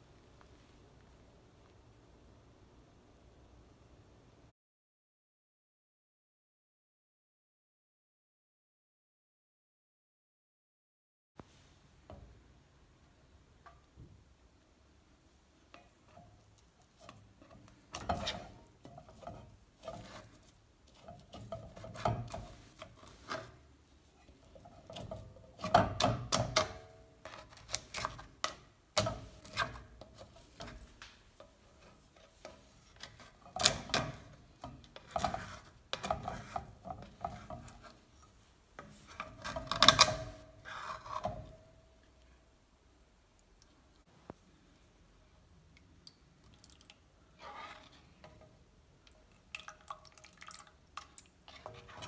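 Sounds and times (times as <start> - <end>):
spoon scraping a steel pot: 17.0 - 23.6, 31.7 - 38.0, 38.8 - 41.5, 47.4 - 48.4, 51.5 - 52.0.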